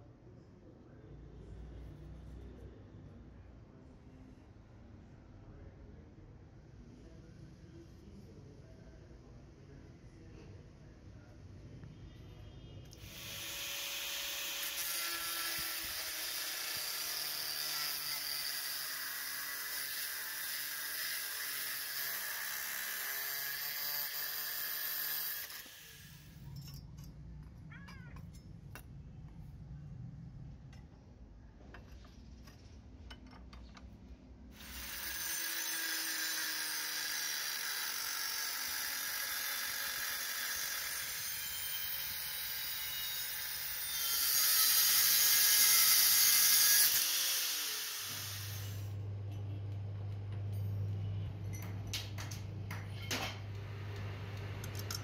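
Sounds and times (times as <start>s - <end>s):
angle grinder cutting sheet metal: 13.0s - 26.4s, 34.6s - 48.9s
hand tool clicking and scraping: 23.9s - 27.5s, 54.6s - 55.0s.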